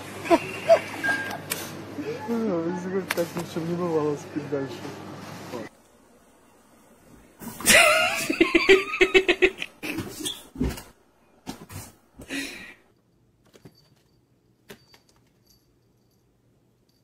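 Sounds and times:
person laughing: 0:07.6 - 0:10.1.

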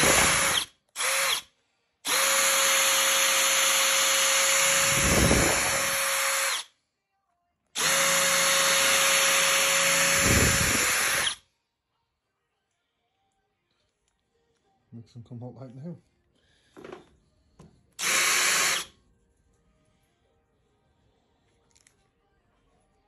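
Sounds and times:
electric drill running: 0:00.0 - 0:06.7, 0:07.8 - 0:11.4, 0:18.0 - 0:18.9.

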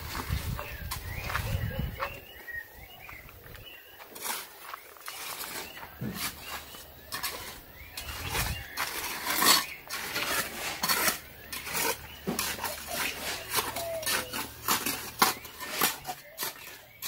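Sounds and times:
trowel scraping wet concrete: 0:04.1 - 0:17.0.

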